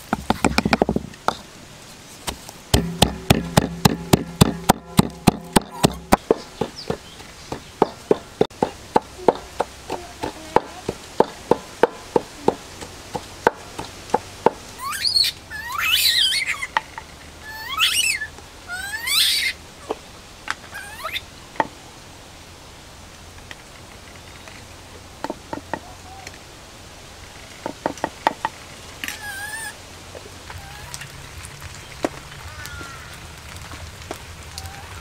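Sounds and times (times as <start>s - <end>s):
pestle pounding in wooden mortar: 0.0s - 1.4s, 2.3s - 14.6s
high-pitched animal calls: 14.8s - 16.8s, 17.4s - 19.6s, 20.6s - 21.3s, 29.0s - 29.8s, 30.5s - 31.1s, 34.5s - 35.0s.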